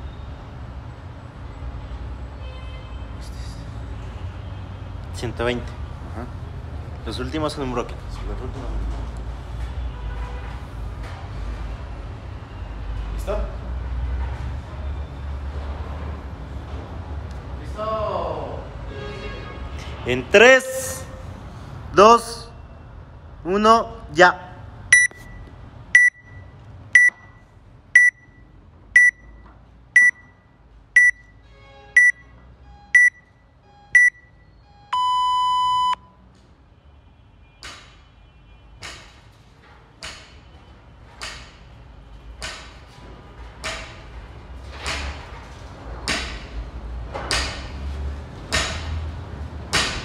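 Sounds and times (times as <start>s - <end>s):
interval timer beeping: 24.9s - 25.4s, 26.0s - 27.4s, 28.0s - 28.4s, 29.0s - 29.4s, 30.0s - 30.4s, 31.0s - 31.3s, 32.0s - 32.2s, 32.8s - 33.3s, 33.9s - 36.0s.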